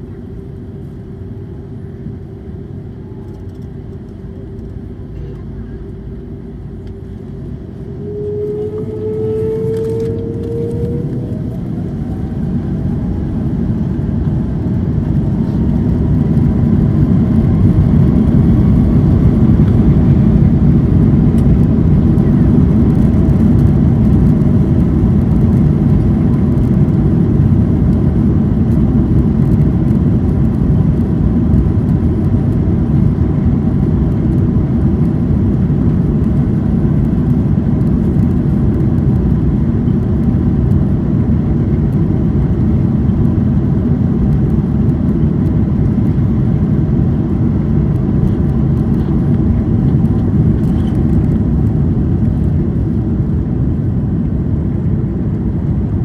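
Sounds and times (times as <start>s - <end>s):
jet engines spooling up: 6.7s - 22.3s.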